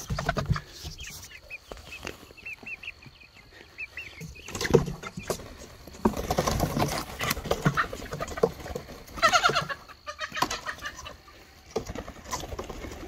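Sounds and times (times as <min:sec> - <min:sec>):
chicks peeping softly: 0:00.0 - 0:13.0
wings flapping: 0:04.5 - 0:11.0, 0:11.7 - 0:13.0.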